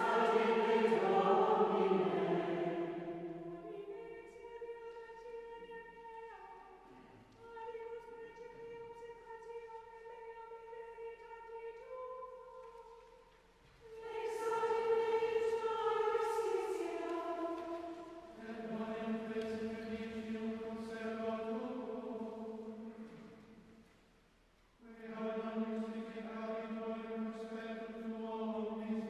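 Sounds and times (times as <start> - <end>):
choir chanting: 0.0 - 4.7, 13.9 - 23.4, 24.8 - 29.0.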